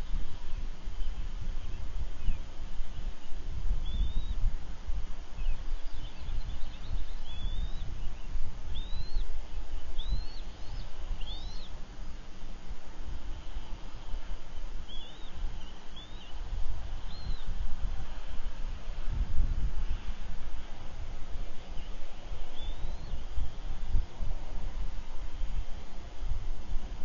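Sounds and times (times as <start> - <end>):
steady low rumble: 0.0 - 27.0
high bird chirps: 5.4 - 9.3, 10.0 - 11.8, 22.5 - 23.3.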